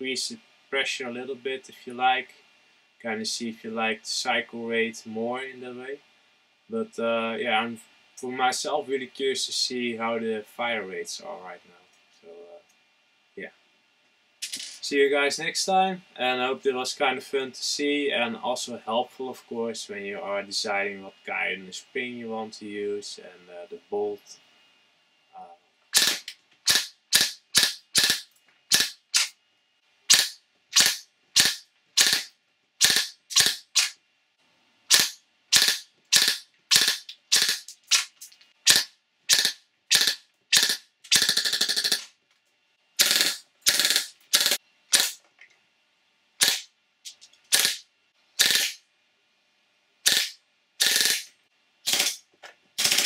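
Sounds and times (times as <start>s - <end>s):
airsoft gun shots: 26.0s - 29.3s, 30.1s - 33.9s, 34.9s - 38.1s, 38.7s - 42.1s, 46.4s - 46.7s, 48.4s - 48.8s
full-auto burst: 26.0s - 29.3s, 30.1s - 33.9s, 34.9s - 37.7s, 38.7s - 42.1s, 43.0s - 45.1s, 47.5s - 47.8s, 48.4s - 48.8s, 50.1s - 51.3s, 51.9s - 52.2s, 52.8s - 53.0s.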